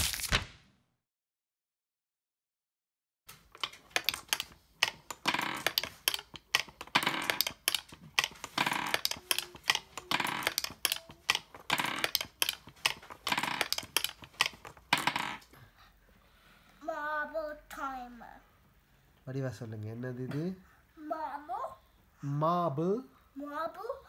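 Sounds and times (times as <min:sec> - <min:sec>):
marbles rattling down wooden ramps: 0:03.6 - 0:15.4.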